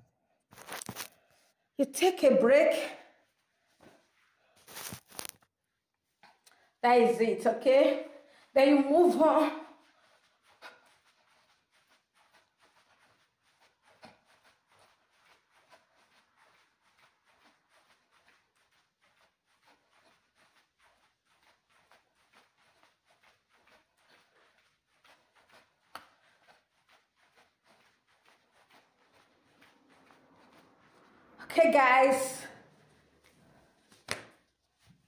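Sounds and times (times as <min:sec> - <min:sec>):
footfalls jogging on the spot: 0:07.8 - 0:35.0.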